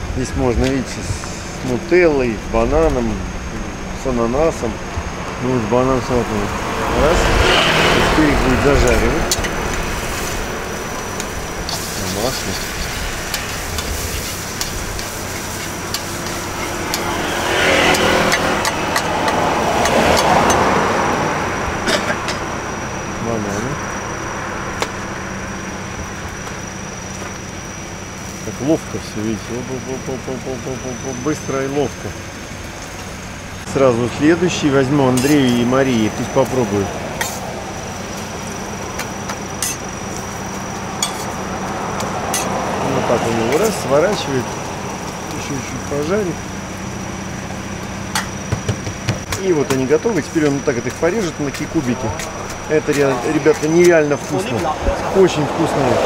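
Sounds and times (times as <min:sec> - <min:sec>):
steady low hum: 0:00.0 - 0:20.5, 0:21.2 - 0:56.0
vehicles idling: 0:00.0 - 0:56.0
food sizzling on griddle: 0:08.8 - 0:20.8, 0:34.6 - 0:55.0
metal spatula clinking on griddle: 0:41.0 - 0:41.3.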